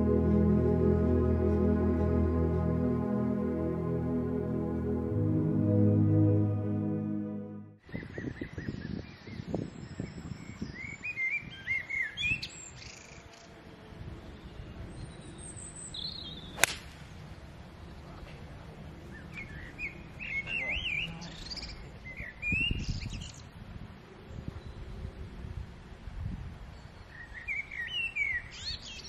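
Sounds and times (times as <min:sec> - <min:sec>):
songbirds chirping: 0:07.8 - 0:25.4, 0:26.5 - 0:29.0
golf club striking ball: 0:16.6 - 0:17.2.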